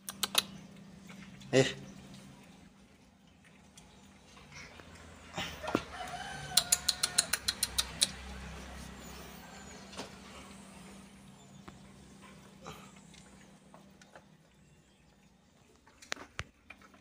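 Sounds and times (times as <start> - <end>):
drawn-out animal call: 5.1 - 13.6.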